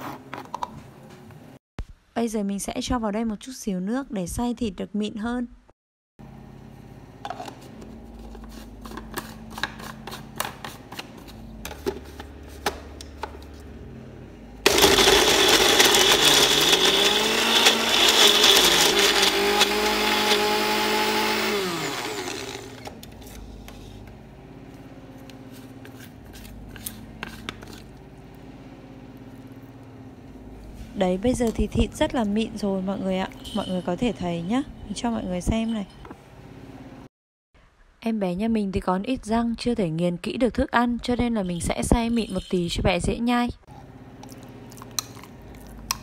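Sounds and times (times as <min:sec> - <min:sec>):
blender motor grinding: 0:14.6 - 0:28.3.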